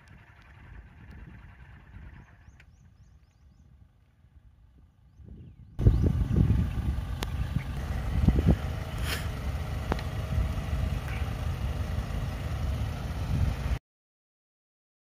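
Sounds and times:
vehicle engine low rumble: 0.0s - 13.8s
short hiss: 8.9s - 9.4s.

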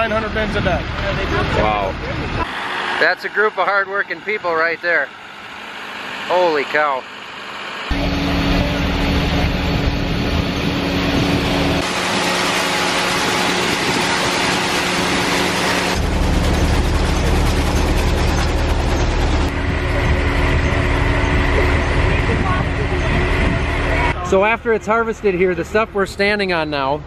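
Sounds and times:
harvester engine running: 0.0s - 26.8s.

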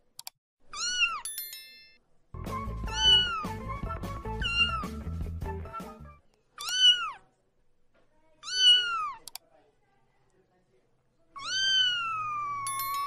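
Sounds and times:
kitten meowing: 0.7s - 1.2s, 2.9s - 3.6s, 4.4s - 4.9s, 6.6s - 7.2s, 8.4s - 9.2s, 11.4s - 12.8s.

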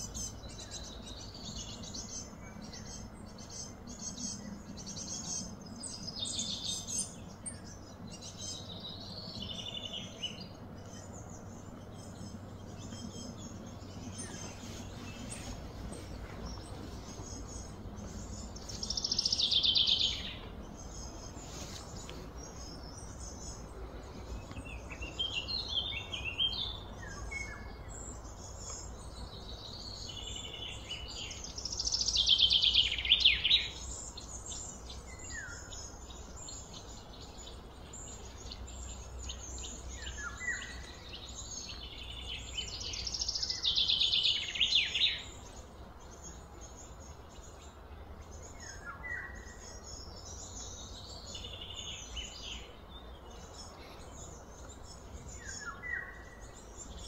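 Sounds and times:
low background rumble: 0.0s - 44.5s
quiet bird chirps: 0.0s - 57.0s
songbird trilling: 0.0s - 57.0s.

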